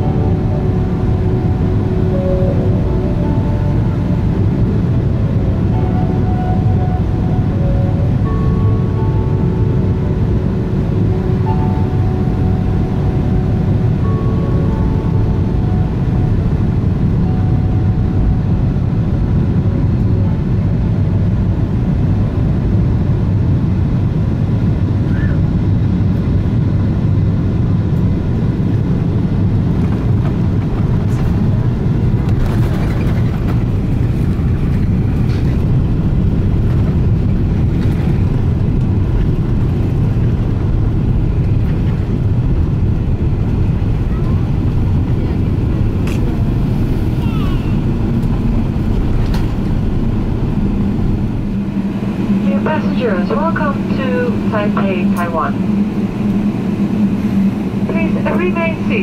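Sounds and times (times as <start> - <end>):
low rumble of jet engines: 0.0 - 59.0.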